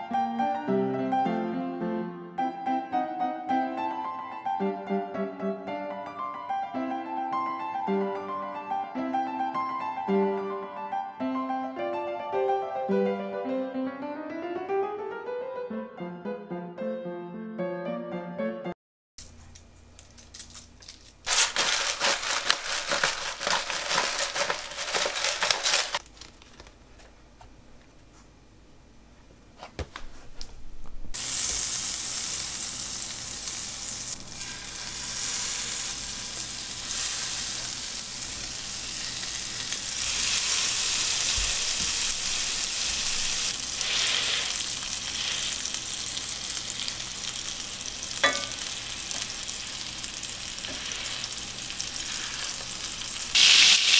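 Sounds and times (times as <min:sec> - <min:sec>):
food sizzling in a pan: 0:31.2 - 0:53.9.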